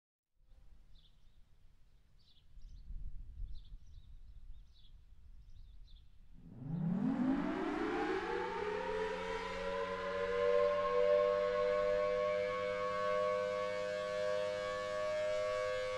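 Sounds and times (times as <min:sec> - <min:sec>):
warning siren wailing: 0:06.4 - 0:15.9.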